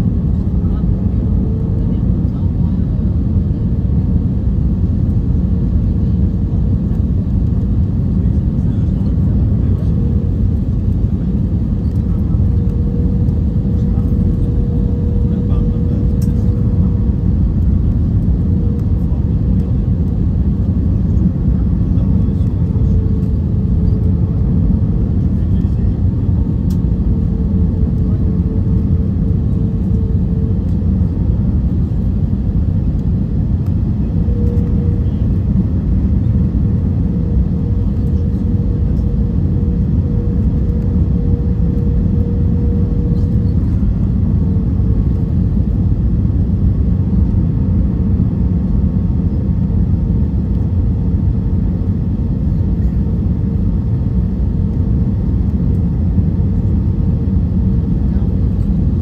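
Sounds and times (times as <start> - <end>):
airplane cabin engine rumble: 0.0 - 59.0
thin hum tone: 8.2 - 46.0.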